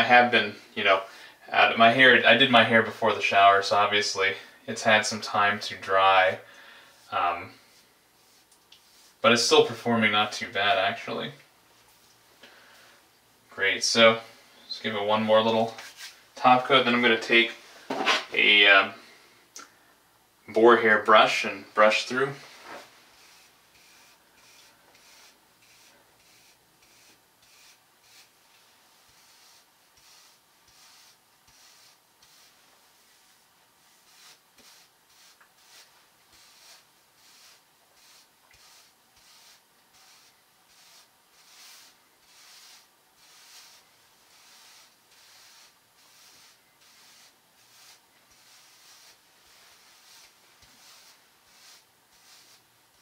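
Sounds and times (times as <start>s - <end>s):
hairbrush brushing hair: 21.8s - 53.0s.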